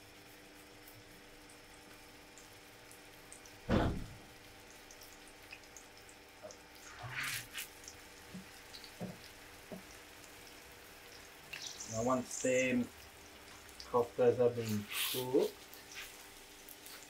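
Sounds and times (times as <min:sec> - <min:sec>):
meat sizzling in oil: 0:00.0 - 0:17.0
dull thump: 0:03.7 - 0:04.2
small oil pops: 0:08.3 - 0:10.0.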